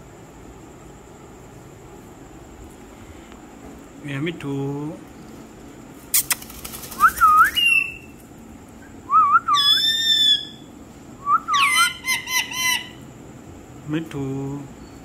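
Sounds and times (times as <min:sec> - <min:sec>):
parakeet squawks and chatter: 0:09.6 - 0:10.6, 0:11.5 - 0:13.0.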